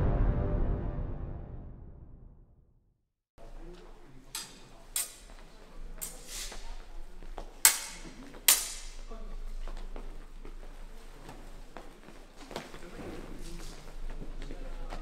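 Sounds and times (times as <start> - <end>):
sword blades clinking: 4.3 - 5.4, 7.6 - 9.1.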